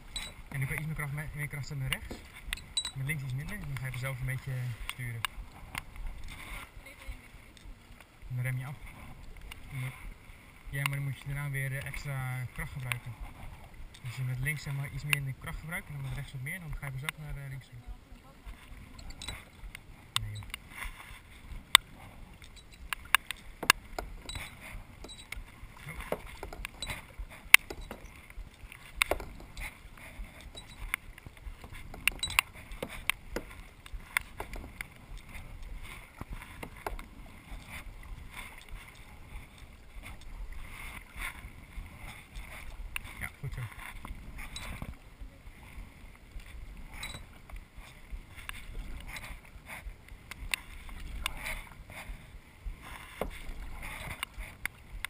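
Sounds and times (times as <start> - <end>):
paddle strokes in water: 0.0 - 55.0
sharp clicks and knocks: 21.7 - 37.1.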